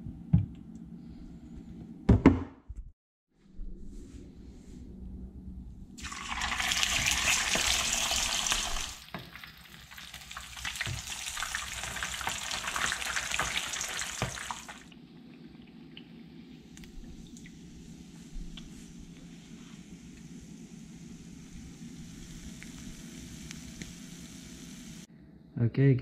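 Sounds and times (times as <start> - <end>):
fish frying in hot oil: 6.0 - 14.9.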